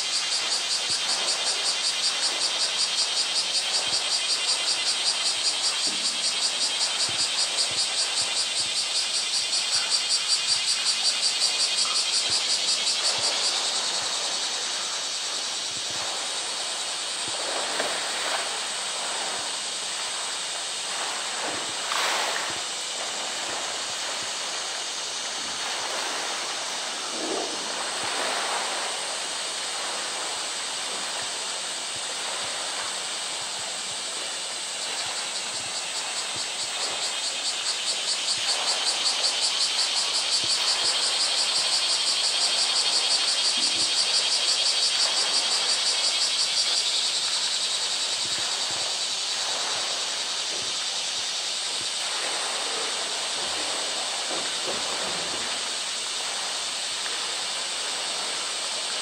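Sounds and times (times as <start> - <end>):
water sloshing and splashing: 12.1 - 37.6, 51.7 - 59.0.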